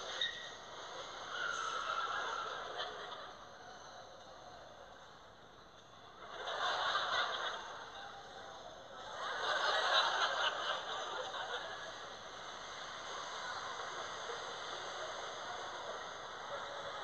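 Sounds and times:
studio audience laughing: 1.2s - 3.6s, 6.2s - 17.0s.

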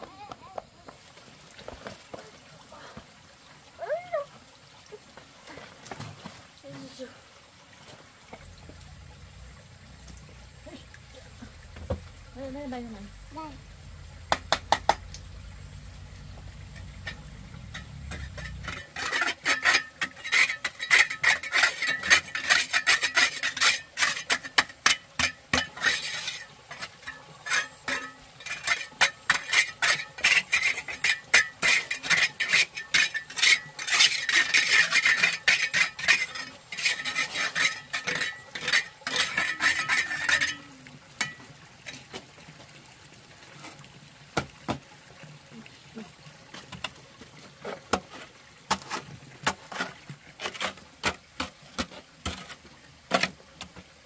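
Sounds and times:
trowel scraping wet mortar: 16.7s - 41.4s, 47.6s - 53.4s.

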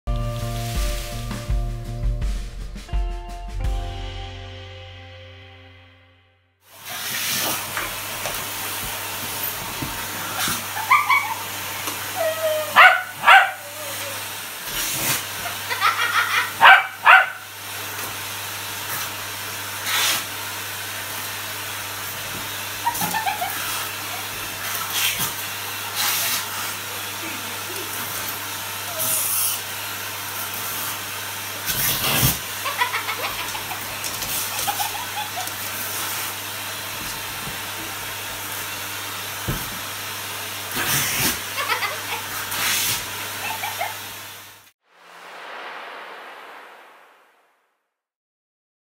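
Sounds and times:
vacuum cleaner running: 0.1s - 1.9s, 6.7s - 46.6s
dog barking: 12.7s - 13.7s, 16.6s - 17.5s.

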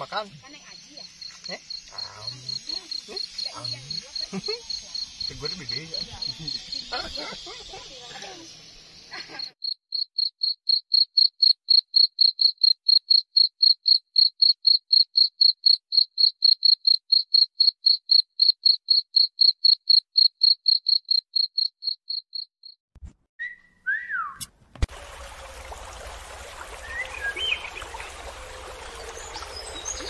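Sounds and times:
insect chirping: 0.0s - 22.8s.

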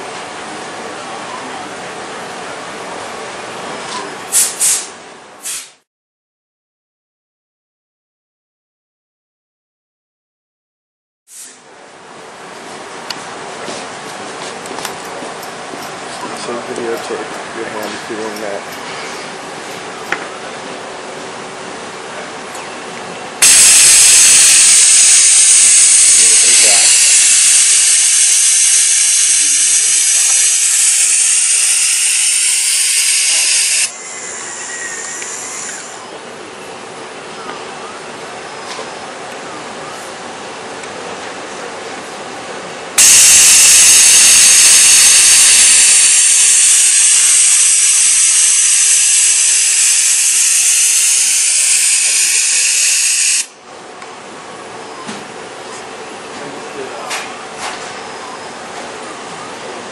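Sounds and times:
compressed air hissing: 4.3s - 5.8s, 11.3s - 11.6s, 23.4s - 36.0s, 43.0s - 53.5s.

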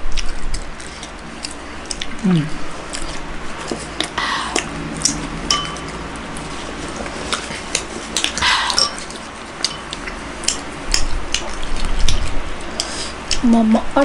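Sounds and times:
spoon clinking on ceramic bowl: 5.5s - 6.0s, 8.7s - 9.1s.

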